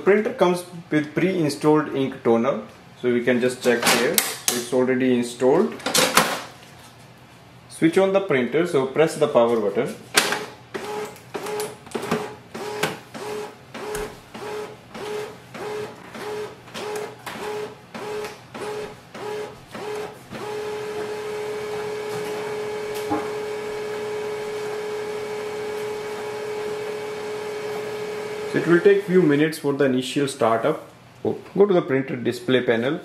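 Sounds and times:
printer motor whirring: 0:10.2 - 0:29.1.

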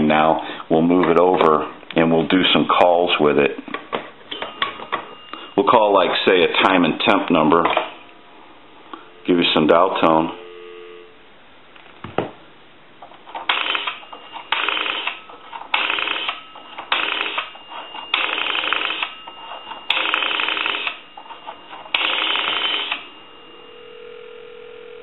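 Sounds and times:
telephone ringback tone: 0:04.3 - 0:11.2, 0:13.5 - 0:25.0.

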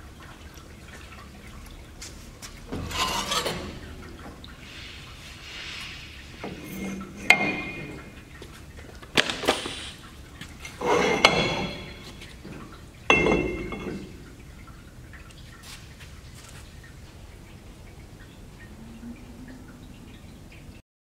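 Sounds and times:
steel tubes clanking and scraping: 0:02.6 - 0:08.4, 0:09.2 - 0:14.4.

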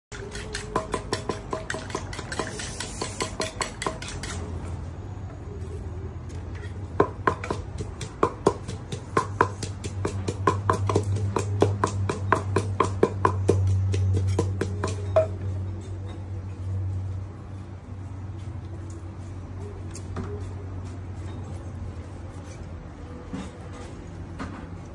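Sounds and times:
pestle pounding in mortar: 0:00.1 - 0:04.4, 0:06.9 - 0:15.4.

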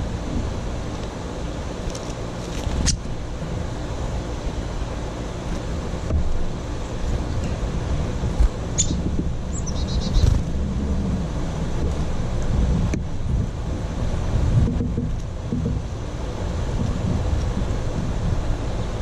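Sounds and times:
wind rumbling on microphone: 0:00.0 - 0:19.0
small bird chirping: 0:08.7 - 0:10.4.

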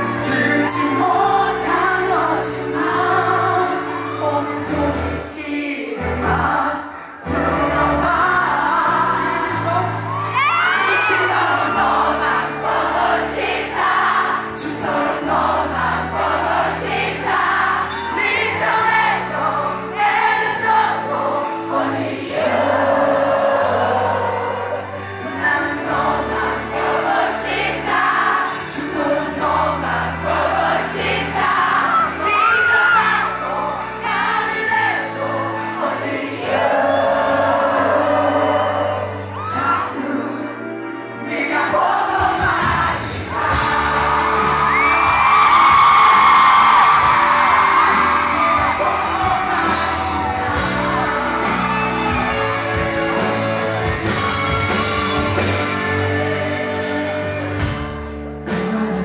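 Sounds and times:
man singing into microphone: 0:00.0 - 0:12.2, 0:14.4 - 0:15.8, 0:28.4 - 0:30.5, 0:31.8 - 0:43.5, 0:58.4 - 0:59.0
audience voices: 0:00.0 - 0:59.0
live rock band playing: 0:00.0 - 0:59.0.

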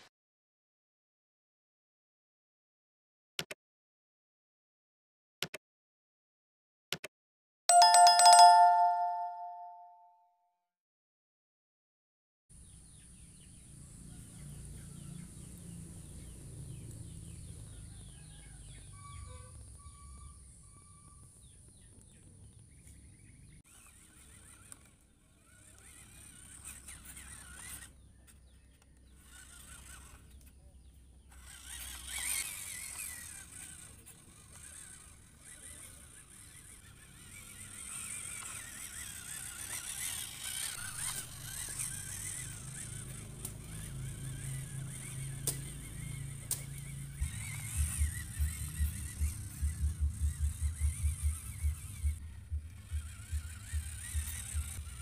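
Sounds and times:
rc truck motor whirring: 0:12.6 - 0:55.0.

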